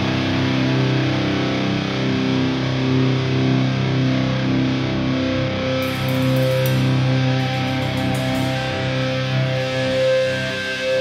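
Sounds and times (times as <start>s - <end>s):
distorted guitars and bass droning: 0.0s - 11.0s
cymbal hits: 5.8s - 9.8s.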